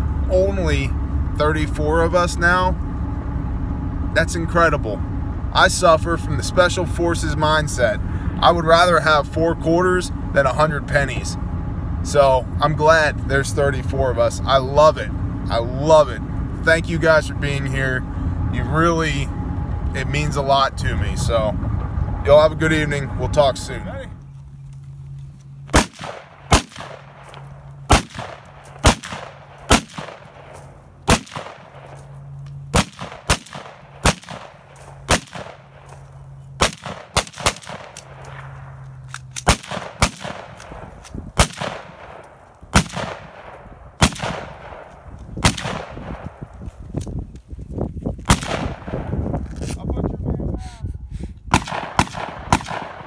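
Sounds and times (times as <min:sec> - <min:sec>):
rifle shots echoing: 0:25.7 - 0:36.0, 0:36.6 - 0:46.4, 0:48.3 - 0:49.1, 0:51.5 - 0:53.0.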